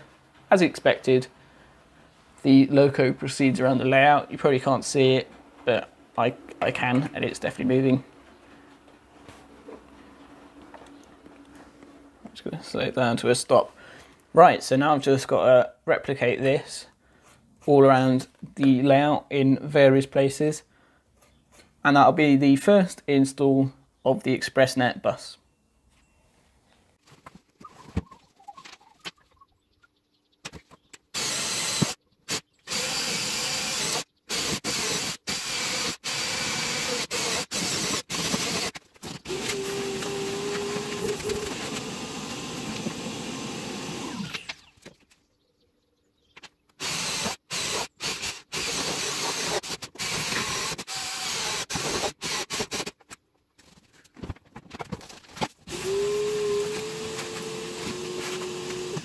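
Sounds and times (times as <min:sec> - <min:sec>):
cordless drill drilling into wood: 0:31.2 - 0:44.6, 0:46.8 - 0:52.9, 0:55.7 - 0:59.0.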